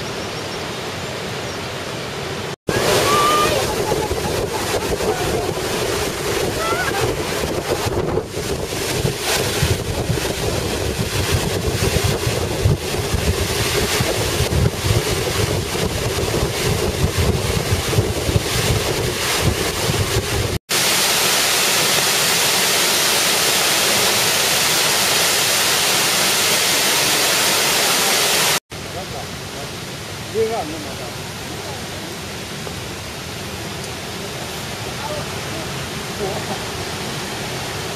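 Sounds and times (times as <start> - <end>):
waterfall rushing: 0.0 - 37.9
wind buffeting microphone: 2.7 - 20.6.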